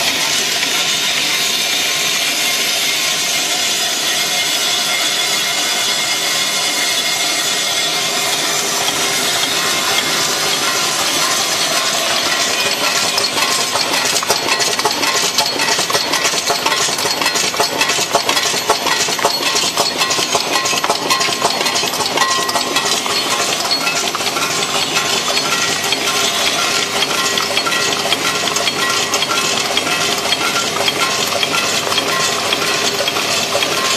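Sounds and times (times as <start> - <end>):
screws rattling in feeder: 7.6 - 33.9
machine hum: 7.8 - 33.9.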